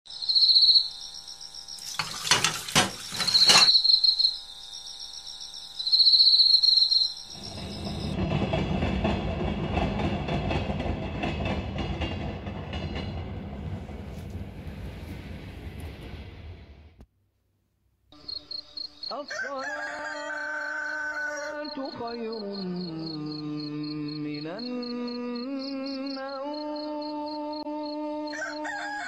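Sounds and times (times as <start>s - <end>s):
crickets chirping: 0.1s - 8.3s, 18.2s - 29.0s
train rumbling past: 7.3s - 17.0s.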